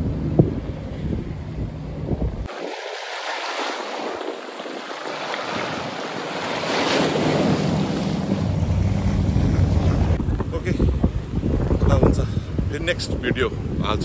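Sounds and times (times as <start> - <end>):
wind buffeting microphone: 0.0 - 14.0
waves splashing against rocks: 2.5 - 10.2.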